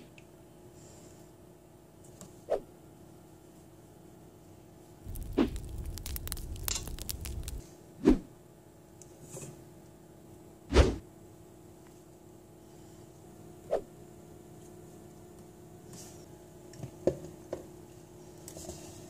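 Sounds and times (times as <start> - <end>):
rumbling crackling burst: 5.1 - 7.6.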